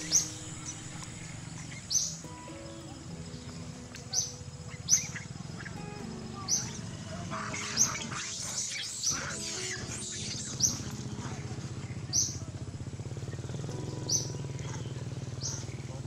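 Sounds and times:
monkeys chirping squeals: 4.1s - 12.6s
monkeys harsh screeching: 6.5s - 11.6s.

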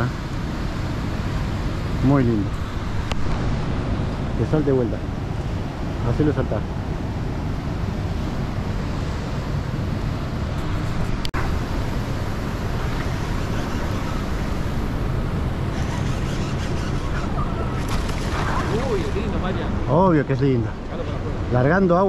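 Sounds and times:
wind: 0.0s - 22.0s
churning river water: 11.3s - 22.0s.

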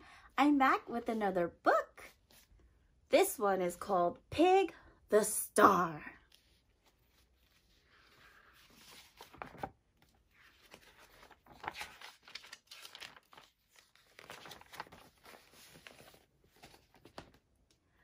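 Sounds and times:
paper pages rustling: 6.3s - 17.8s.

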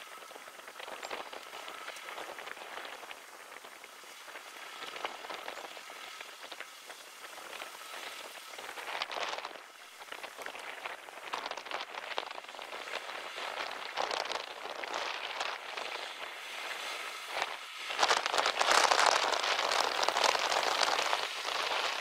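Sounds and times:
plough crackling through soil: 0.0s - 22.0s.

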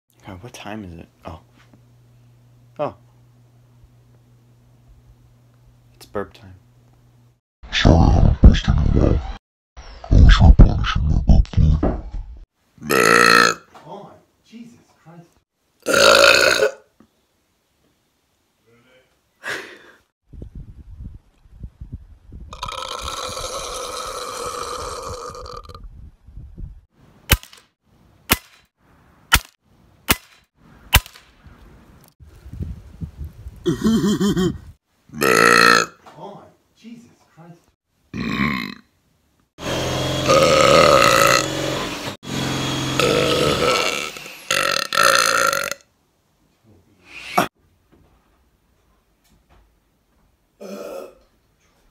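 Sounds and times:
long human burp: 12.8s - 13.6s, 15.8s - 16.9s, 22.5s - 25.8s, 33.7s - 36.0s, 38.2s - 38.8s, 40.3s - 41.5s, 43.0s - 45.8s, 50.6s - 51.3s
rifle shot: 27.3s - 27.6s, 28.3s - 28.7s, 29.3s - 31.3s.

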